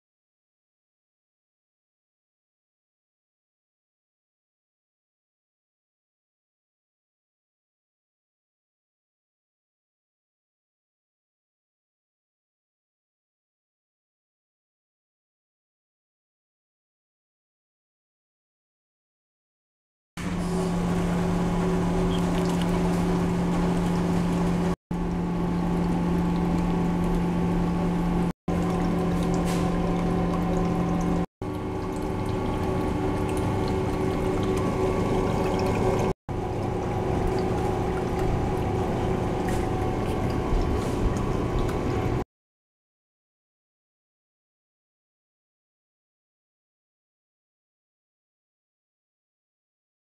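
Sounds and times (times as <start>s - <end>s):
low hum: 20.2s - 42.2s
pump running: 20.2s - 42.2s
water pouring from a hose: 21.2s - 24.7s, 28.5s - 42.2s.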